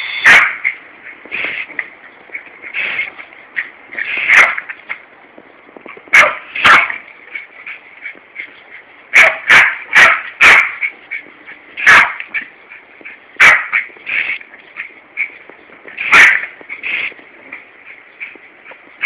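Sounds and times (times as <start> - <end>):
small dog barking: 0.2 - 0.6, 6.1 - 7.0, 9.1 - 10.9, 11.8 - 12.4, 13.4 - 13.9, 16.1 - 16.5.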